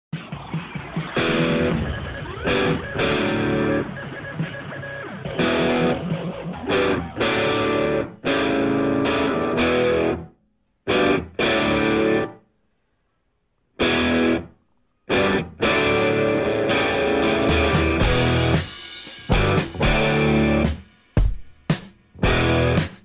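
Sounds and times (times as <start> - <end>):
electric guitar music: 1.2 - 12.4, 13.8 - 14.5, 15.1 - 18.7, 19.3 - 20.8, 22.2 - 22.9.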